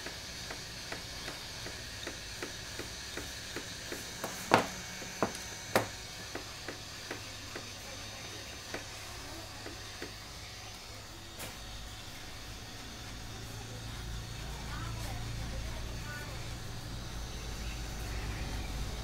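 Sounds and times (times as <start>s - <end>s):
heat gun blowing: 0.0s - 8.1s.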